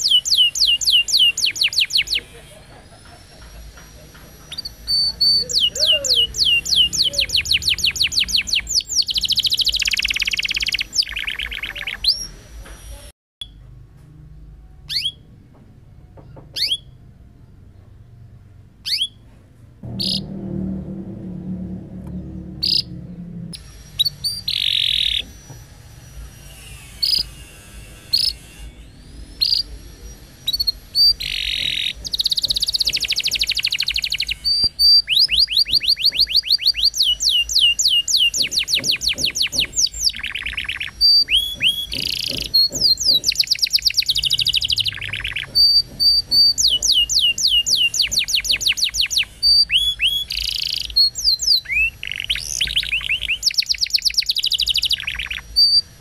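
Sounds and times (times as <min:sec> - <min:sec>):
canary singing trills: 0:00.0 - 0:12.6, 0:14.8 - 0:15.3, 0:16.2 - 0:17.9, 0:18.8 - 0:19.3, 0:19.9 - 0:20.4, 0:22.0 - 0:56.0
low hum: 0:17.0 - 0:43.0.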